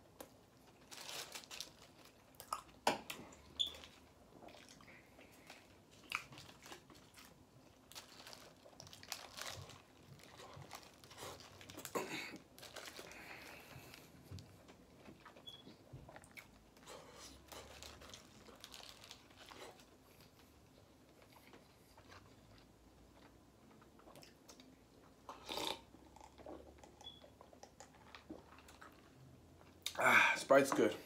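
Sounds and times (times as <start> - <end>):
paper wrapper crinkling: 0.6 - 2.4, 5.4 - 14.0, 17.4 - 20.5.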